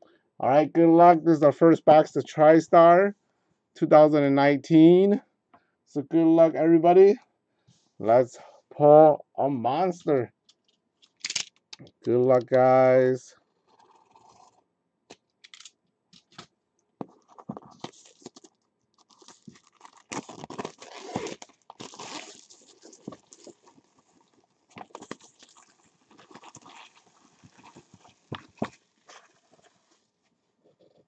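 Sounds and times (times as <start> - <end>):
plastic shrink wrap crinkling: 17.3 - 30.2.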